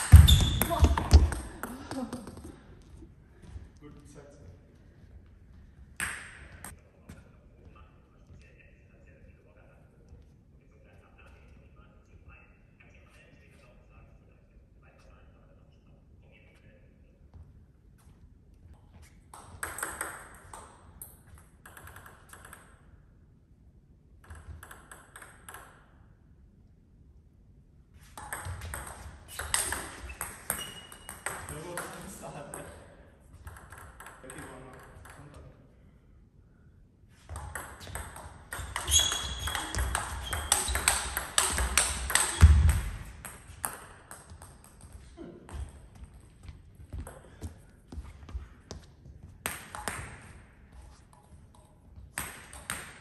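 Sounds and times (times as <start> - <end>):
table tennis ball hitting rackets: 0.0 - 2.6, 6.0 - 6.7, 19.3 - 22.8, 24.2 - 25.9, 28.0 - 35.4, 37.2 - 45.8, 49.4 - 53.0.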